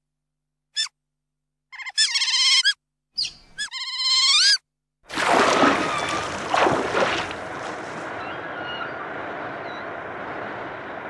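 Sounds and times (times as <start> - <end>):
otters calling: 5.4 - 11.0
faint chirps: 7.6 - 11.0.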